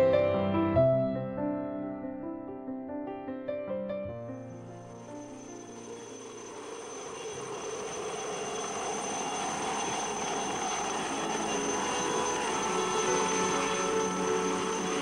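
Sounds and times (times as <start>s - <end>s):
music: 0.0s - 6.3s, 10.9s - 15.0s
helicopter rotor and turbine: 4.9s - 15.0s.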